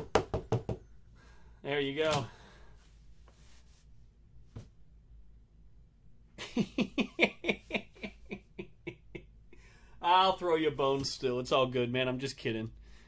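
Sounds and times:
man laughing: 6.4 - 9.6.

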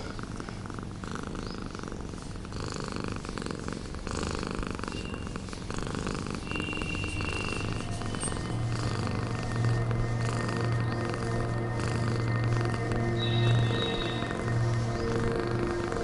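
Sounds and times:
cat purring: 0.0 - 16.0.

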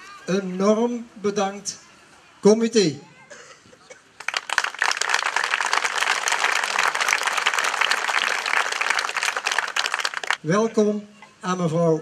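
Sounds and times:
crowd applauding: 4.2 - 10.4.

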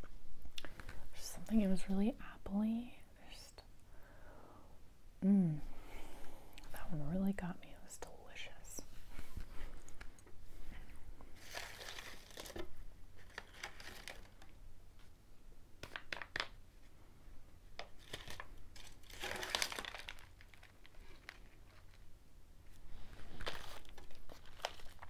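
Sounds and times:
snack packaging crinkling: 11.4 - 14.6, 15.8 - 16.6, 17.8 - 22.1, 23.1 - 25.0.

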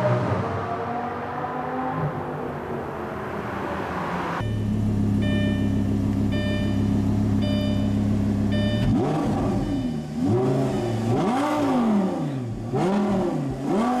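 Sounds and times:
car engine idling and revving: 0.0 - 14.0
electronic chime beeping: 4.4 - 9.0, 9.6 - 10.1.

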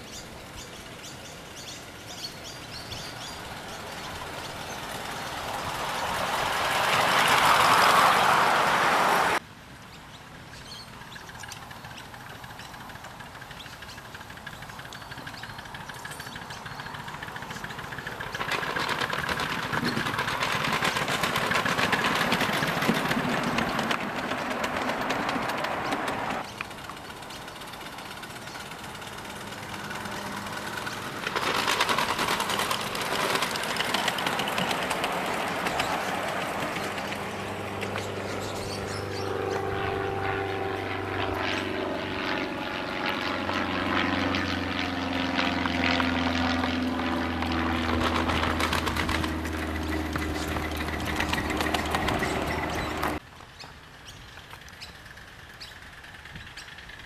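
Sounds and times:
distant miniature steam locomotive: 0.0 - 9.4, 10.3 - 42.6, 45.5 - 57.0
miniature steam locomotive hissing: 1.8 - 9.4, 11.6 - 25.8, 26.4 - 37.2
metallic wheel clatter: 11.5 - 38.1, 48.0 - 53.2.

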